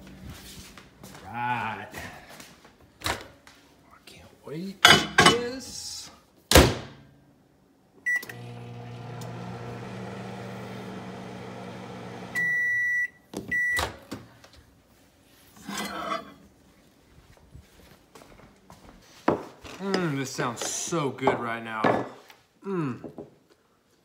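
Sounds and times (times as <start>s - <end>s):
microwave beeps: 8.0s - 10.1s, 11.5s - 14.0s
microwave humming: 8.1s - 14.2s.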